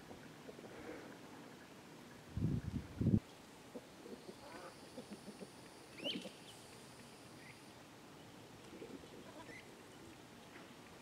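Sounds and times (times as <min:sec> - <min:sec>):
bird calls: 0:03.7 - 0:10.8.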